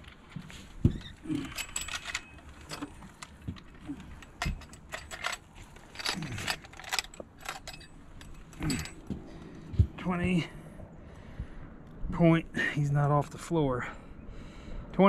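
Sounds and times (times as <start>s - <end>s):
metal clicking and rattling: 0.0s - 9.2s.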